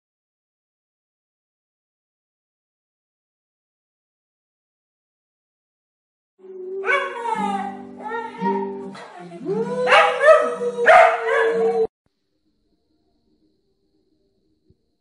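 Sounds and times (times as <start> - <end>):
background music with held notes: 6.4 - 11.9
dog howling and yipping: 6.8 - 8.7, 9.8 - 11.9.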